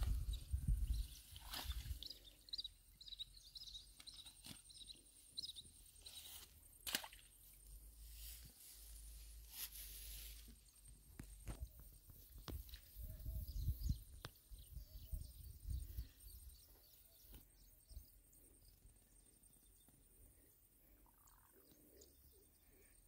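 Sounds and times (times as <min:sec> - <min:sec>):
wind rumble on microphone: 0:00.0 - 0:02.1, 0:11.5 - 0:16.5
faint bird chirps: 0:00.0 - 0:06.5, 0:10.2 - 0:23.0
footsteps in grass: 0:07.9 - 0:11.4.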